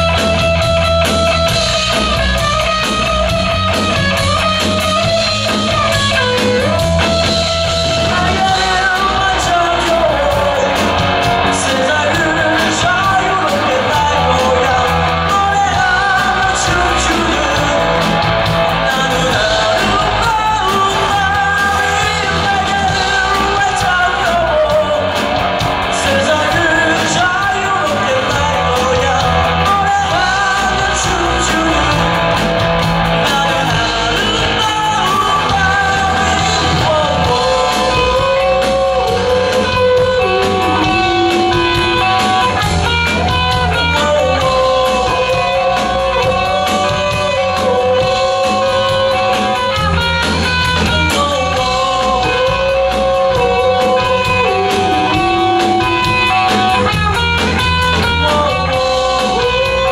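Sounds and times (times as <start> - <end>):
lead singer singing: 0.0 - 59.9
live rock band playing: 0.0 - 59.9.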